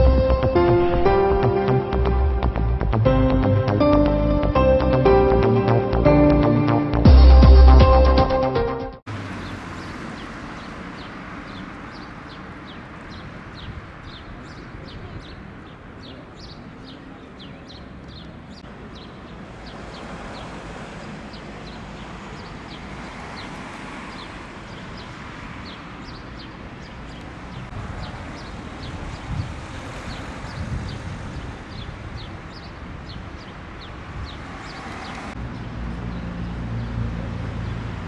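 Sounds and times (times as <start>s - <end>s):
outdoor background rush: 0.0s - 38.0s
small birds chirping: 9.4s - 36.9s.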